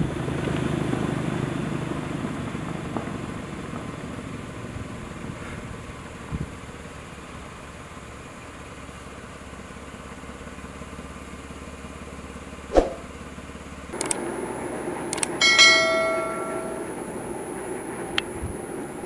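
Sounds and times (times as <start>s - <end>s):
low background hum: 13.9s - 19.0s
clicks: 14.0s - 14.3s, 15.1s - 17.0s
bright bell ding: 15.4s - 17.2s.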